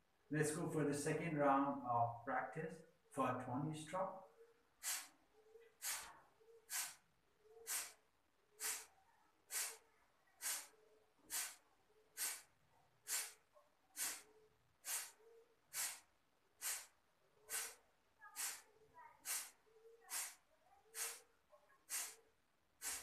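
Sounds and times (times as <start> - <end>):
forceful exhalations through nose: 4.8 - 23.0.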